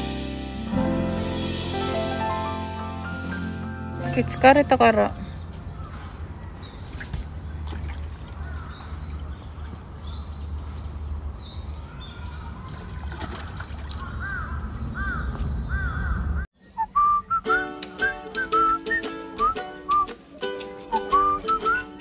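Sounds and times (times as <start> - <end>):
bird calls rising and falling: 13.8 - 16.4.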